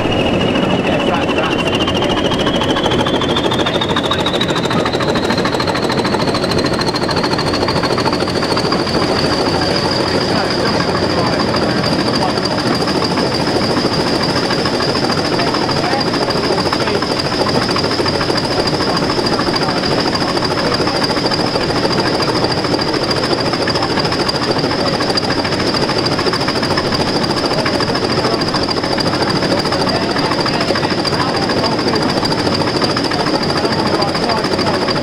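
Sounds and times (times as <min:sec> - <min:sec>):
steady high whistle: 0:00.0 - 0:25.3
diesel locomotive engine running: 0:00.0 - 0:35.0
train running noise: 0:00.0 - 0:35.0.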